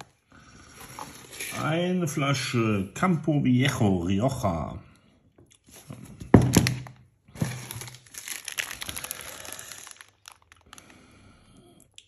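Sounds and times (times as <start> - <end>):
plastic wrapper crinkling: 5.6 - 11.2.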